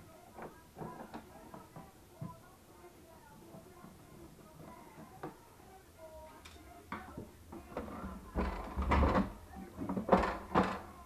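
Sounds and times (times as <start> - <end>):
plastic parts rattling and knocking: 7.6 - 11.0.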